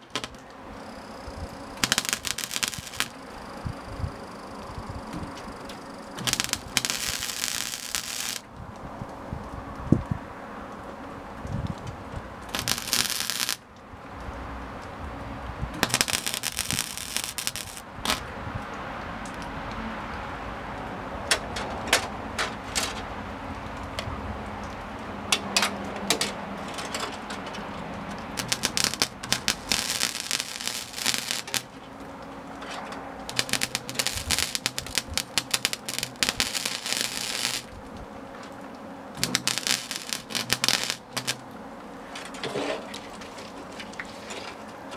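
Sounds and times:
welding pops: 0:00.0 - 0:04.3, 0:05.1 - 0:08.4, 0:11.6 - 0:13.6, 0:15.7 - 0:18.3, 0:28.3 - 0:32.3, 0:33.2 - 0:38.0, 0:39.2 - 0:41.5
welder arc crackling: 0:00.0 - 0:09.2, 0:10.7 - 0:18.4, 0:28.1 - 0:41.6.

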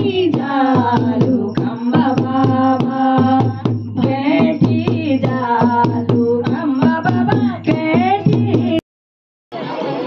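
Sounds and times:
drum beating steady rhythm: 0:00.0 - 0:08.8
women singing through microphones: 0:00.0 - 0:08.8.

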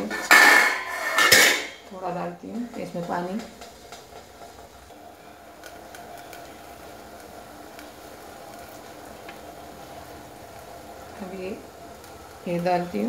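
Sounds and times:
water boiling in a pot: 0:00.0 - 0:13.0
faint clicks: 0:05.6 - 0:06.6.

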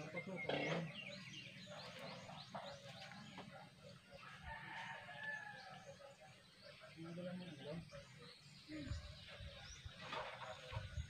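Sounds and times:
small birds chirping: 0:00.0 - 0:11.0
faint rooster crowing: 0:04.2 - 0:05.9.

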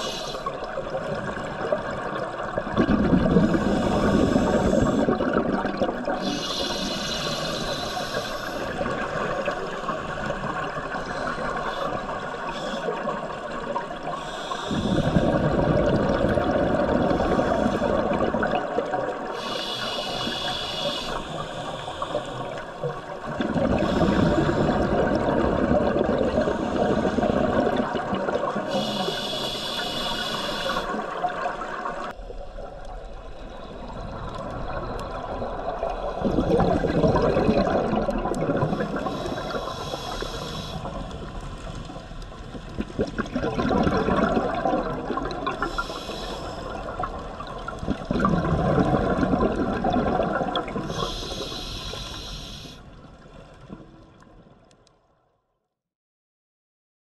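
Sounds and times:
regulator inhale hiss: 0:00.0 - 0:00.6, 0:03.4 - 0:05.2, 0:06.2 - 0:09.9, 0:11.0 - 0:13.1, 0:14.0 - 0:15.4, 0:17.1 - 0:18.2, 0:19.2 - 0:22.8, 0:23.8 - 0:24.8, 0:26.4 - 0:27.6, 0:28.6 - 0:31.2, 0:38.6 - 0:41.7, 0:45.5 - 0:47.0, 0:50.8 - 0:53.0
exhaled bubbles burbling: 0:00.0 - 0:06.8, 0:07.5 - 0:19.4, 0:22.5 - 0:29.0, 0:33.8 - 0:40.2, 0:40.8 - 0:51.5.

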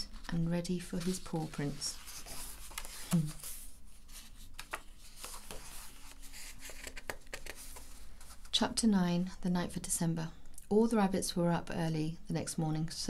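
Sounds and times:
book pages turning: 0:00.0 - 0:08.5.

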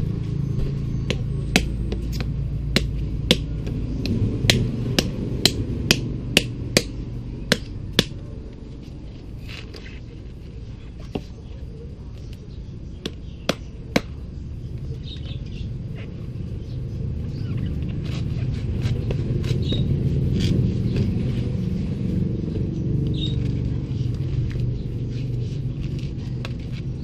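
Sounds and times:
low engine rumble: 0:00.0 - 0:27.0.

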